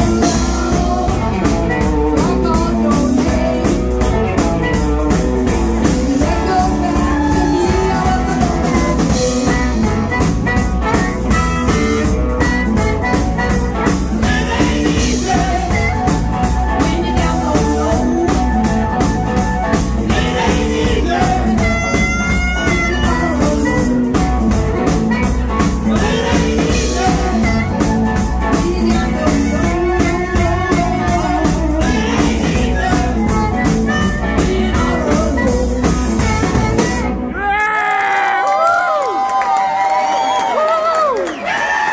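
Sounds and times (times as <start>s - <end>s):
woman singing: 0.0s - 4.8s, 5.4s - 10.3s, 14.2s - 19.2s, 20.0s - 24.2s, 24.8s - 37.0s
drum kit: 0.0s - 37.4s
electric guitar: 0.0s - 37.4s
electric bass: 0.0s - 37.5s.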